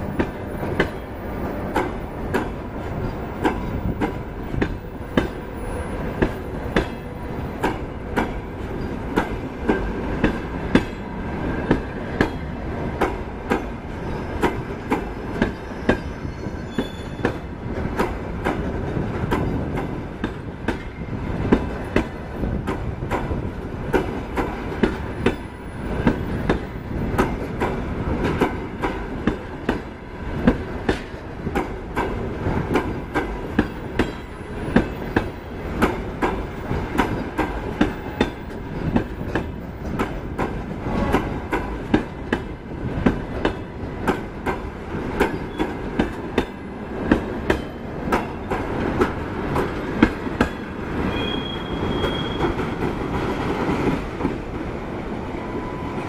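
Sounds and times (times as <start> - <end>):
train wheels clicking over rail joints: 0.0 - 11.0, 11.6 - 54.4.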